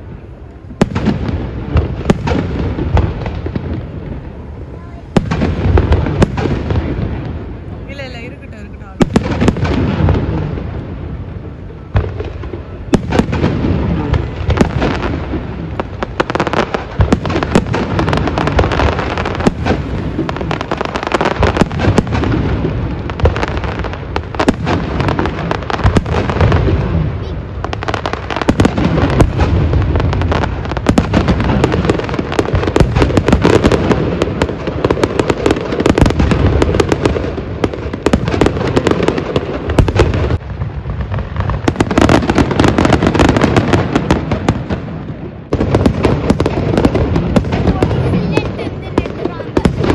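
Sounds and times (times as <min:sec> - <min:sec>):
firework booms: 0:00.0 - 0:49.9
firework crackling: 0:00.0 - 0:49.9.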